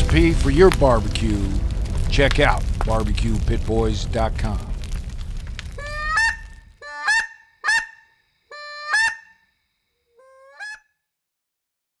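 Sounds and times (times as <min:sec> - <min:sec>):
goose honking: 0:05.8 - 0:09.4, 0:10.2 - 0:10.8.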